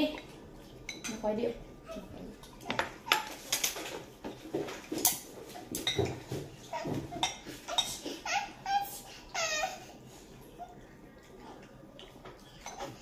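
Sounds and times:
dishes and utensils clinking: 0.0s - 1.3s, 1.9s - 8.4s, 11.3s - 13.0s.

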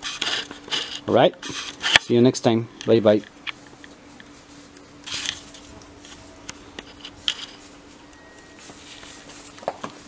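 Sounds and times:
faint steady hum: 0.0s - 10.0s
leaves rustling being brushed: 4.2s - 10.0s.

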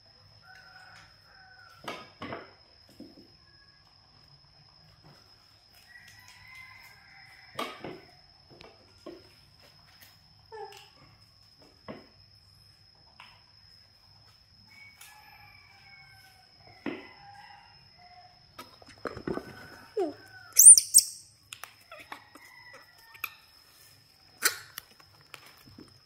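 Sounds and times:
high-pitched squeaks: 20.0s - 21.3s.

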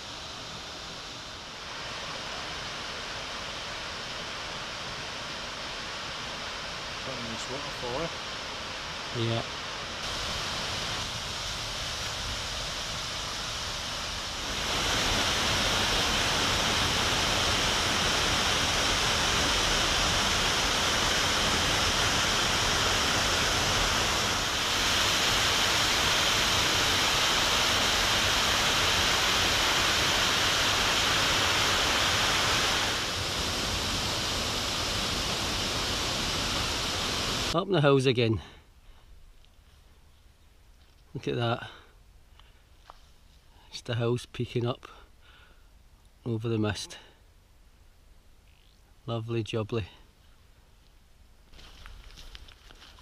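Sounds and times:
running water rushing: 0.0s - 37.6s.

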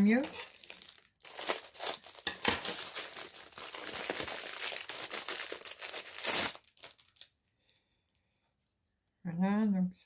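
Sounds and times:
plastic packaging crinkling and tearing: 0.0s - 7.8s.

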